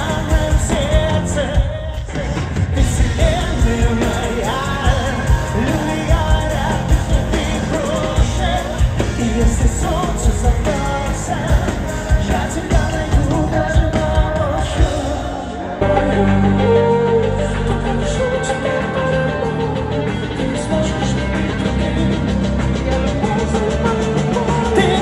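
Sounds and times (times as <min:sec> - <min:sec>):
steady drum beat: 0:00.0 - 0:15.9
live pop-rock band playing: 0:00.0 - 0:25.0
person singing: 0:00.0 - 0:25.0.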